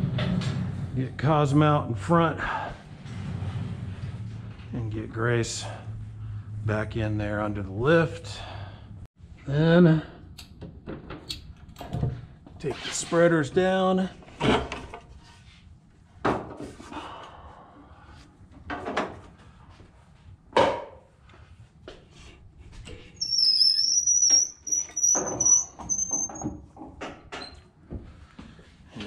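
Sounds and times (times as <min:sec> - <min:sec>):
thin high squeal: 0:23.2 - 0:26.5.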